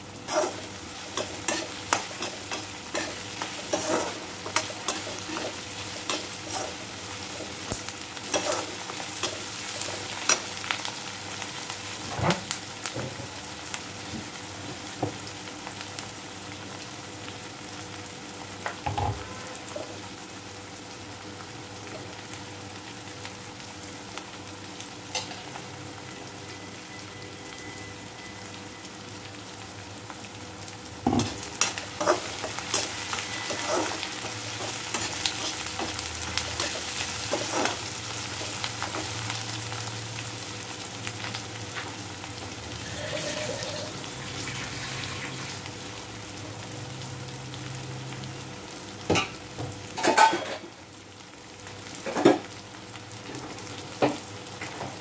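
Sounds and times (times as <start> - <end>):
onions sizzling in hot oil: 0.0 - 55.0
metal spatula scraping a pan: 0.3 - 6.8, 31.2 - 36.0, 42.8 - 44.0.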